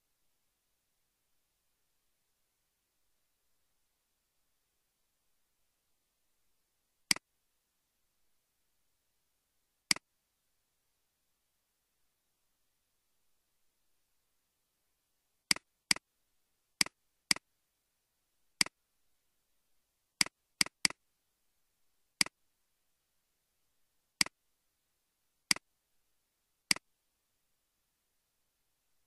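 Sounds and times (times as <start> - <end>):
computer mouse clicks: 20.2 - 21.0.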